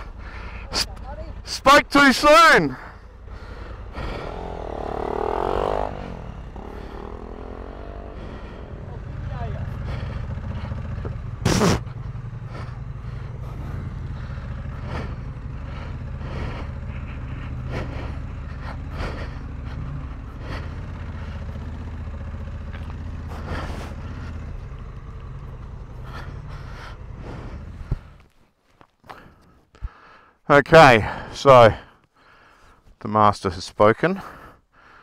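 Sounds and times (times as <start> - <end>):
motorcycle engine running at low revs: 0.0 - 2.0, 2.7 - 28.3.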